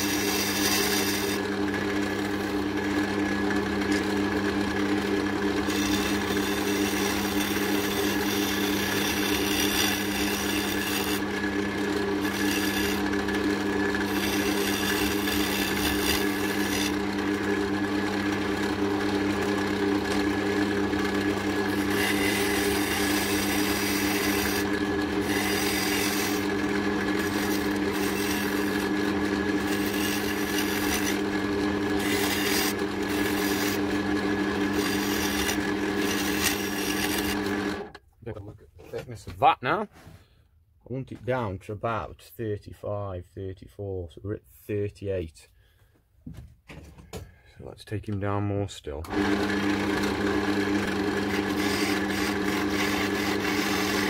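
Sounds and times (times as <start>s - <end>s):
turning tool cutting wood: 0.0s - 38.0s, 49.0s - 54.0s
wood lathe motor running: 0.0s - 38.0s, 49.1s - 54.0s.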